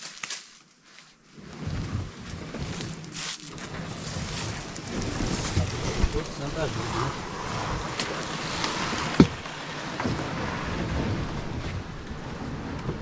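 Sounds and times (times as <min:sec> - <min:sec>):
twigs and leaves crackling: 0:00.0 - 0:01.2, 0:02.3 - 0:09.8.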